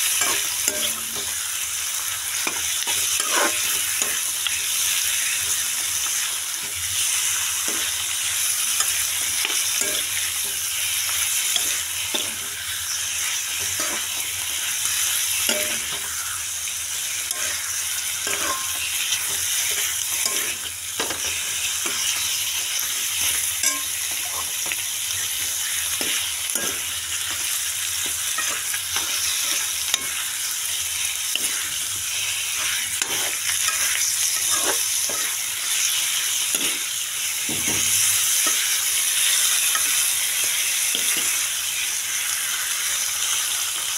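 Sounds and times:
food sizzling in oil: 0.0 - 43.9
utensil scraping a pan: 2.5 - 4.2, 32.5 - 35.4.

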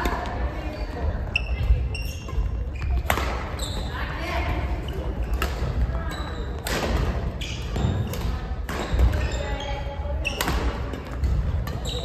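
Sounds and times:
rackets hitting shuttlecock: 1.4 - 3.8, 4.8 - 9.5, 10.2 - 12.0.

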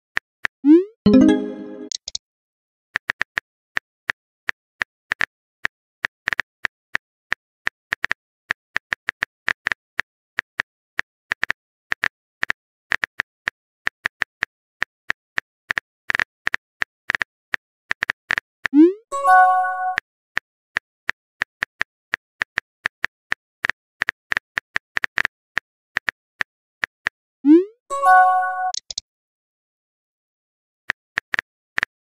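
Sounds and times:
rising message alert tone: 0.7 - 2.0, 18.8 - 20.0.

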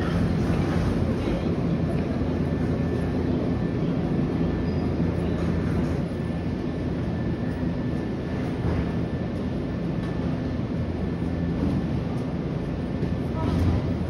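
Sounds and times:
electric train humming: 0.0 - 14.0
station ambient noise: 0.0 - 14.0.

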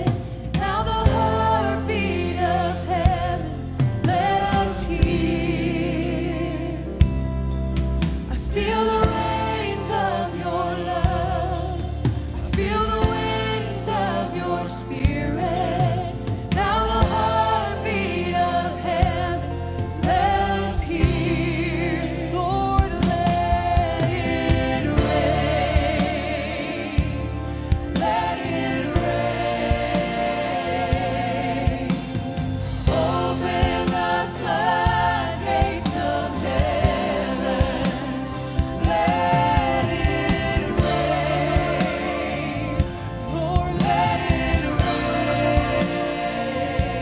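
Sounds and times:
bass line: 0.0 - 47.0
woman singing gospel song: 8.3 - 27.3.

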